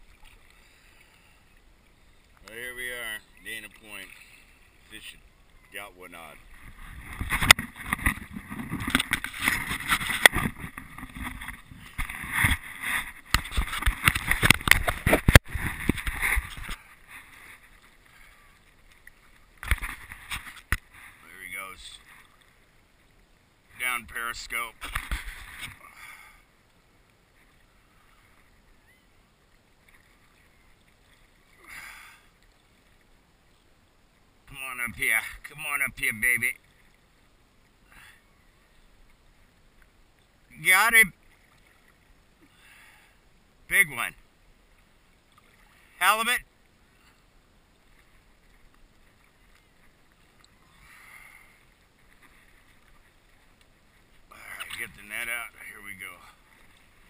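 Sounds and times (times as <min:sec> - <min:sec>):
faint hiss of calm water: 0:00.0 - 0:57.0
soft rustle: 0:06.2 - 0:21.3, 0:46.5 - 0:57.0.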